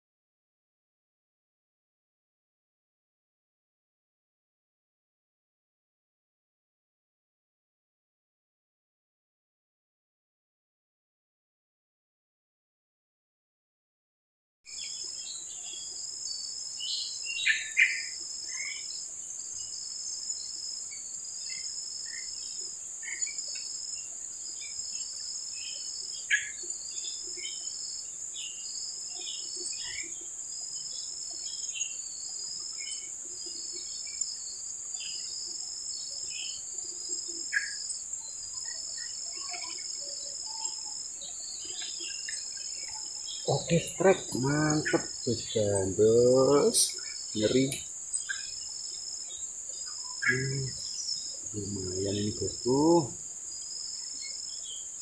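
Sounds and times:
insects shrilling: 17.2 - 55.0
pulsing high call: 43.5 - 47.8.

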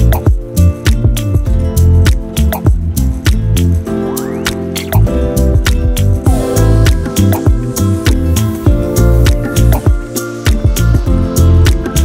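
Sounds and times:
music with steady drum beat: 0.0 - 3.8, 5.4 - 12.0
strong bass line: 5.0 - 9.8.

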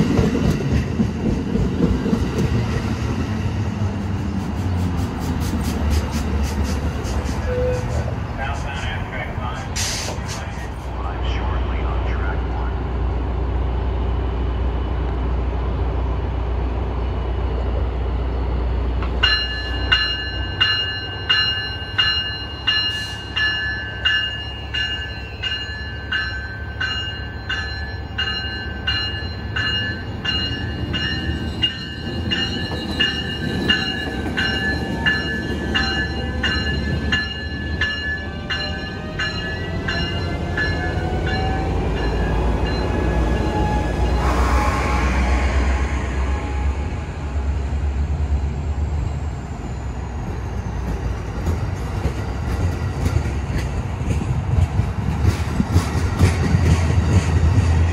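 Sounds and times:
locomotive engine rumble: 0.1 - 57.9
locomotive bell ringing: 19.1 - 44.5.

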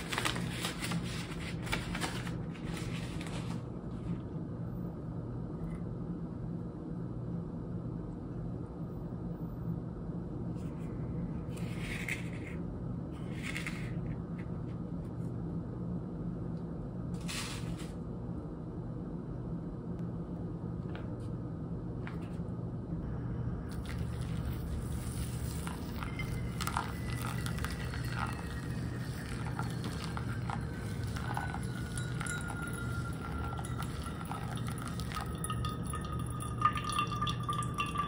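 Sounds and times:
steady low hum: 0.0 - 38.0
water pouring from kettle: 23.7 - 38.0
coffee gear scraping and clinking: 23.8 - 38.0.

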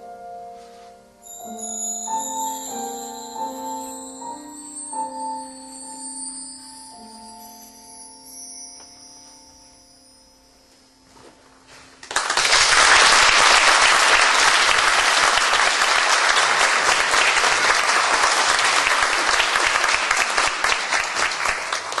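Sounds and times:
audience applause: 12.0 - 22.0.

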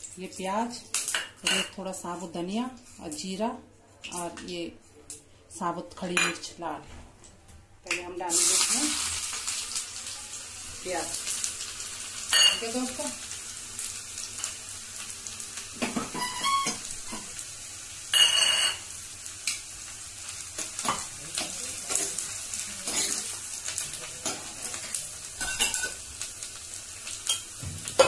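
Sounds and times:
onion sizzling in hot fat: 8.0 - 28.0
spoon scraping a pan: 18.2 - 18.8.

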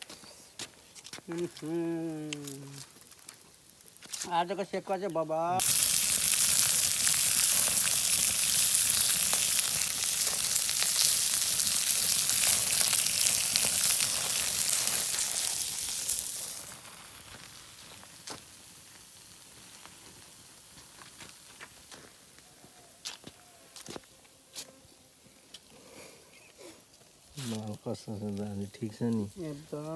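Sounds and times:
meat sizzling on hot stone: 1.3 - 21.9, 27.2 - 29.9.

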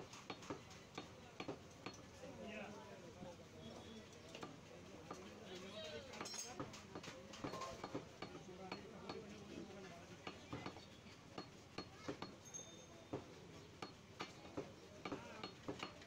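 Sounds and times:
cleaver chopping on wooden block: 13.8 - 16.0.

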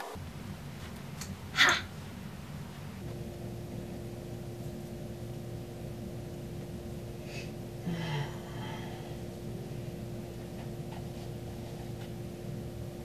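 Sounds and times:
steady room hum: 0.0 - 13.0
man exhaling: 7.2 - 9.3.

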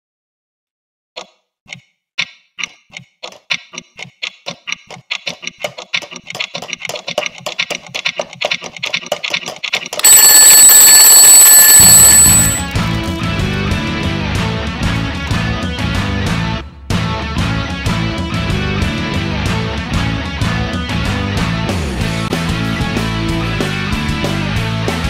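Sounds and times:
twin-bell alarm clock ringing: 10.0 - 12.8.

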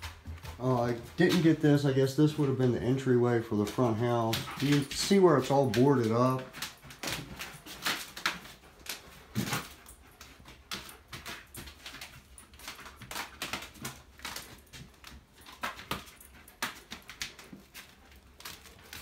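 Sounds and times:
footsteps on creaky wooden floor: 0.0 - 8.1.

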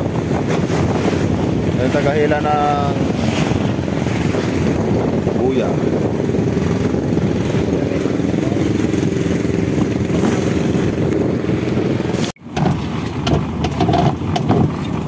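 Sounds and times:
boat engine running: 0.0 - 15.0
water noise: 0.0 - 15.0
wind: 0.0 - 15.0.

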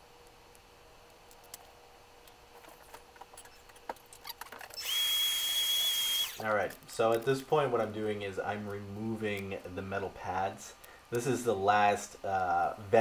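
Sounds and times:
loud high whine with hiss: 4.8 - 13.0.

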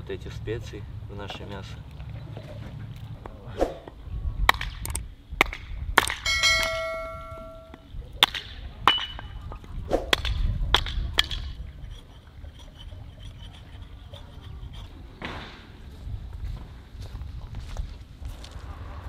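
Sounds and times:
hatchet chopping wood: 4.5 - 6.7, 10.1 - 11.6
clear ringing tone: 6.2 - 7.8.

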